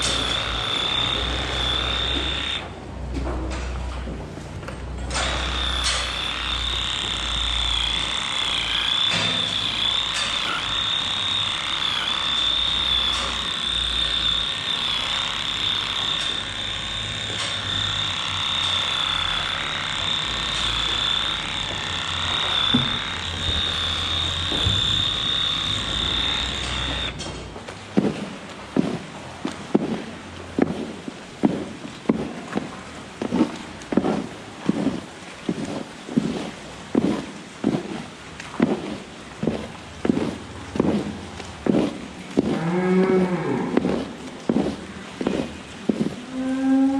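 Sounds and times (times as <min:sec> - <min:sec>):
electric clipper buzzing: 0:00.0 - 0:02.7, 0:05.1 - 0:27.2.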